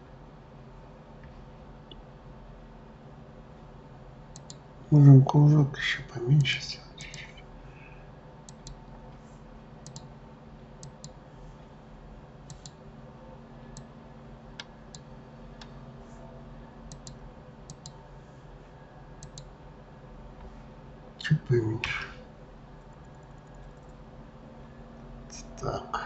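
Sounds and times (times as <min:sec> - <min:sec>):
faint electrical hum: 0:00.0 - 0:26.0
mouse and keyboard clicks: 0:12.5 - 0:12.8, 0:19.2 - 0:19.5.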